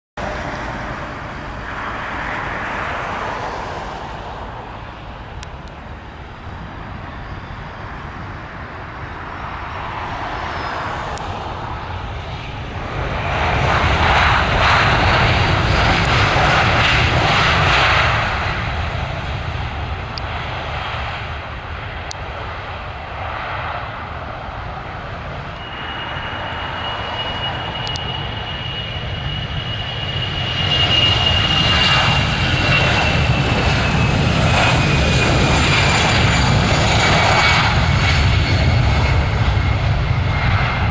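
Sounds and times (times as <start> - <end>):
jet engine high whine: 0.2 - 40.9
jet engines roaring: 0.2 - 40.9.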